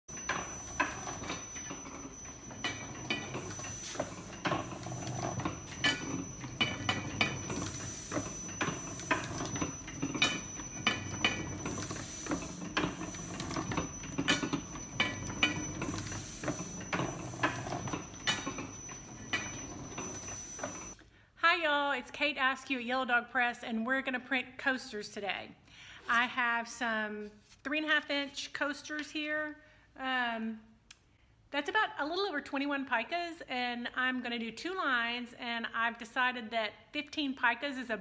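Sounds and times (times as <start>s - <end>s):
printing press clacking: 0.1s - 21.0s
thin high whine: 0.1s - 21.0s.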